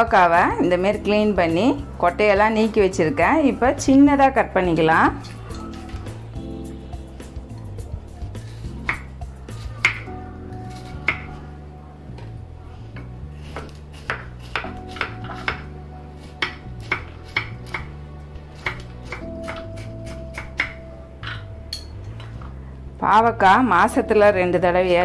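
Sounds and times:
soft background music: 0:00.0 - 0:25.0
knife chopping on a board: 0:09.8 - 0:10.1, 0:10.7 - 0:11.4, 0:13.0 - 0:15.7, 0:16.3 - 0:17.9, 0:18.6 - 0:20.8.

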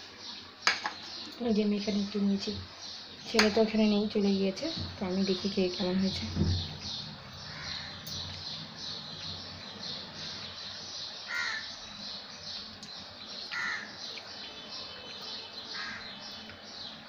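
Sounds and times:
crow cawing: 0:07.5 - 0:08.1, 0:11.3 - 0:11.7, 0:13.5 - 0:14.0, 0:15.7 - 0:16.2.

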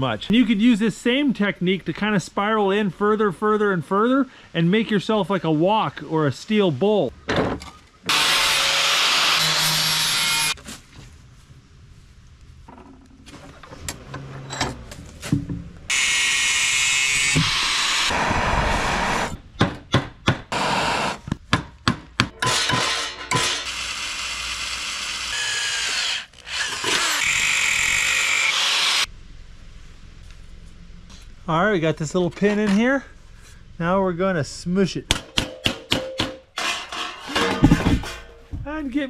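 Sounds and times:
angle grinder on sheet steel: 0:08.1 - 0:10.6, 0:15.9 - 0:19.4, 0:22.5 - 0:29.1
hammer striking steel rod: 0:35.1 - 0:38.3.

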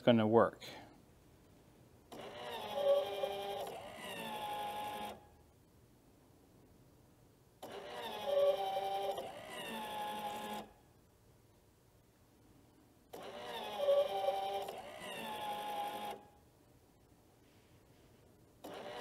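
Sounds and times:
electric motor whine: 0:02.1 - 0:05.2, 0:07.6 - 0:10.7, 0:13.1 - 0:16.2, 0:18.6 - 0:19.0.

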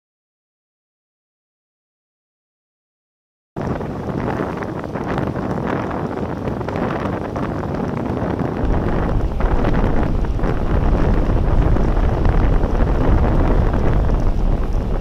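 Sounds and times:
wind buffeting microphone: 0:03.6 - 0:15.0
road noise: 0:08.6 - 0:15.0.

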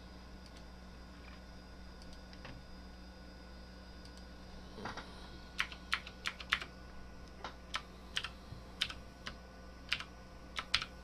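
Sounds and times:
faint low hum: 0:00.0 - 0:11.0
keyboard keys clicking: 0:05.6 - 0:06.7, 0:09.9 - 0:10.9.

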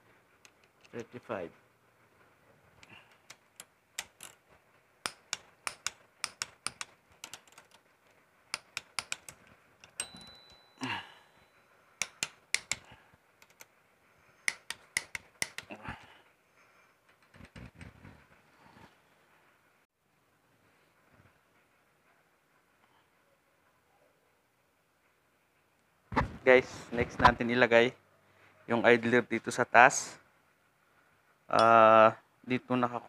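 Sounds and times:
ratchet wrench clicking: 0:05.0 - 0:07.8, 0:08.6 - 0:10.6, 0:12.0 - 0:13.6, 0:14.5 - 0:15.7.

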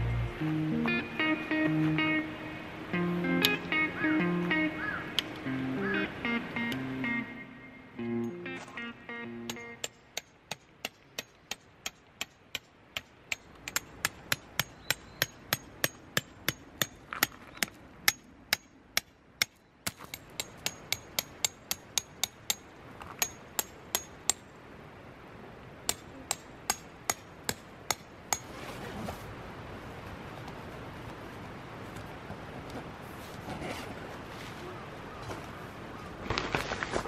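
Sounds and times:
tent pegs being hammered: 0:08.2 - 0:24.4, 0:25.9 - 0:28.5.

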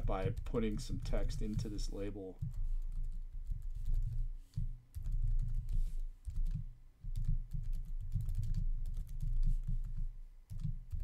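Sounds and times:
typing on computer keyboard: 0:02.4 - 0:11.0.

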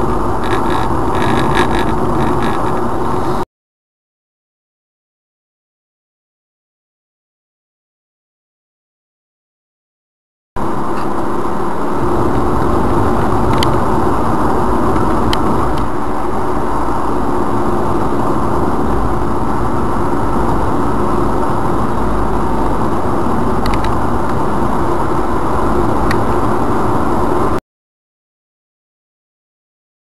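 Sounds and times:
road and engine rumble in car: 0:00.0 - 0:03.5, 0:10.6 - 0:27.6.

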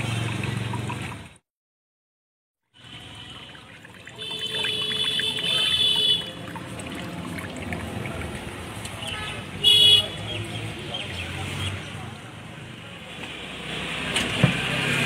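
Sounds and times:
juice trickling into a glass: 0:02.8 - 0:09.0.

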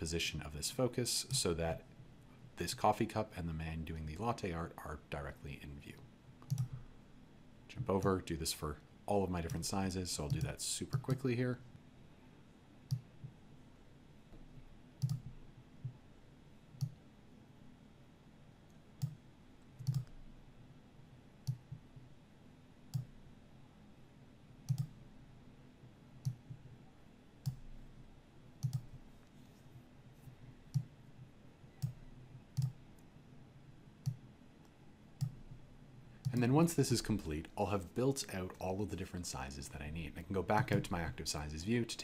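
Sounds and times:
computer mouse clicking: 0:06.4 - 0:06.8, 0:10.2 - 0:11.2, 0:12.9 - 0:13.4, 0:15.0 - 0:16.0, 0:16.8 - 0:17.0, 0:18.7 - 0:19.2, 0:19.8 - 0:20.2, 0:21.4 - 0:21.8, 0:22.9 - 0:23.1, 0:24.7 - 0:25.0, 0:26.2 - 0:26.7, 0:27.4 - 0:27.7, 0:28.6 - 0:29.0, 0:30.7 - 0:31.0, 0:31.8 - 0:33.1, 0:34.0 - 0:35.4.

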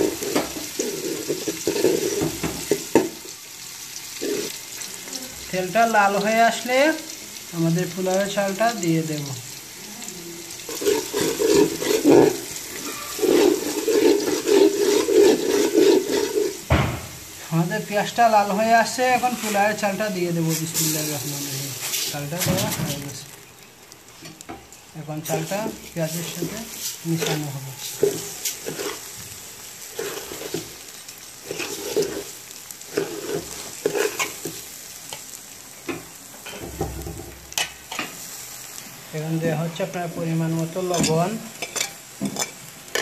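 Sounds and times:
spoon stirring: 0:00.0 - 0:03.0, 0:10.7 - 0:16.6, 0:25.2 - 0:35.3
onions frying in hot oil: 0:00.0 - 0:43.0
sharp knock: 0:16.7 - 0:17.2.

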